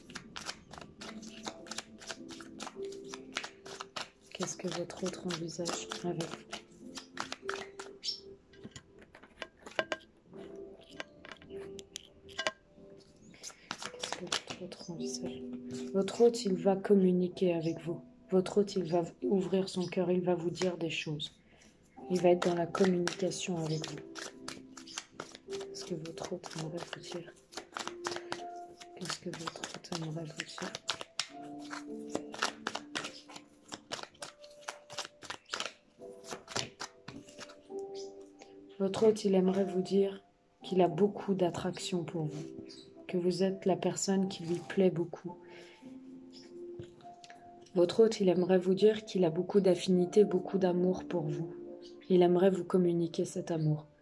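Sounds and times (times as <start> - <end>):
cards being shuffled: 0.0 - 9.9, 13.2 - 14.9, 22.0 - 38.0.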